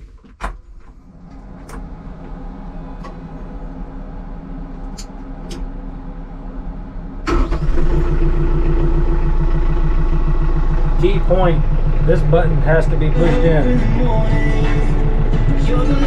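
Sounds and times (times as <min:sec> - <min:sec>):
diesel engine starting and idling: 0:00.0 - 0:16.0
low hum: 0:00.6 - 0:16.0.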